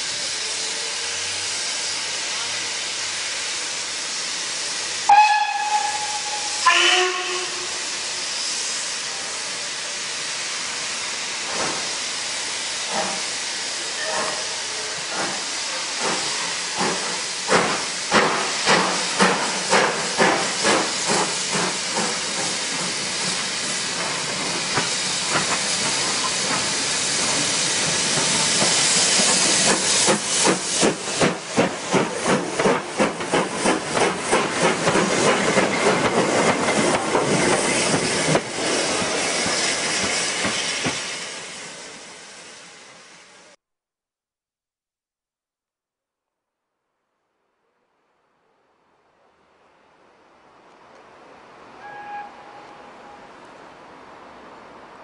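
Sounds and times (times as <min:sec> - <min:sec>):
steam hissing: 0:00.0 - 0:43.6
steam whistle blasts: 0:05.0 - 0:08.1, 0:51.8 - 0:53.3.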